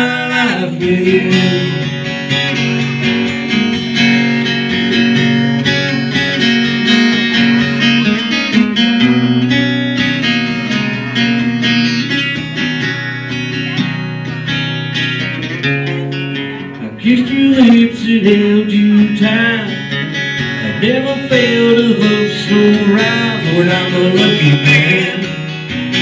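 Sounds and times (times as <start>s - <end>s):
amplified acoustic guitar picking: 0.0s - 26.0s.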